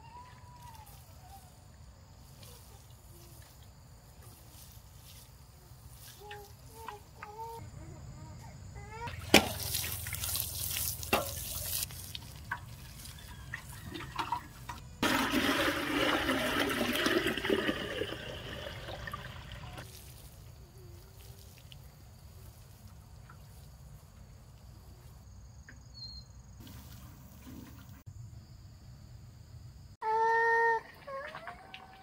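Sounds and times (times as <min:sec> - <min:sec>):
water splashing: 0:09.1 - 0:20.5, 0:30.7 - 0:32.0
water pouring: 0:09.2 - 0:20.3.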